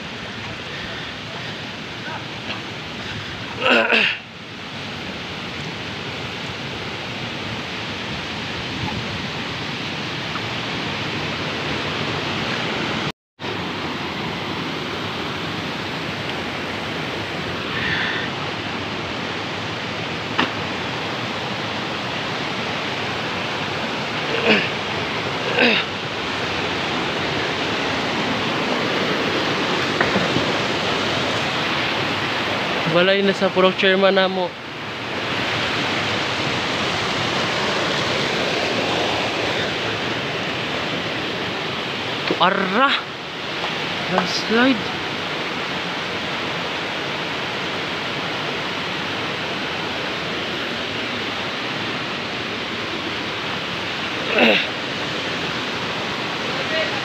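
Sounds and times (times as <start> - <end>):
floodwater rushing: 0.0 - 57.0.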